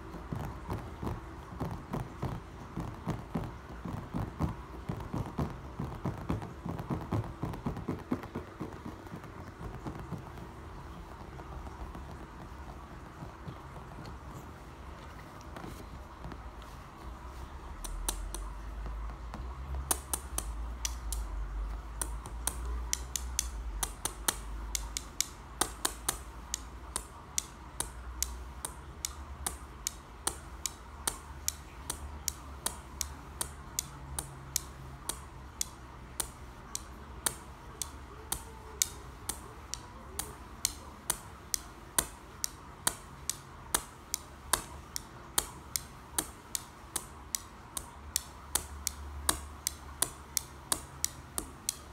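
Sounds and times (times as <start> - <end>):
tiles tapped together: 17.8 - 51.9.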